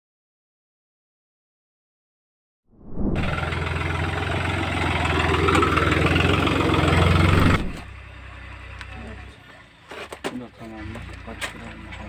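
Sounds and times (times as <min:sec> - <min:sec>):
tractor diesel engine under load: 0:03.2 - 0:12.0.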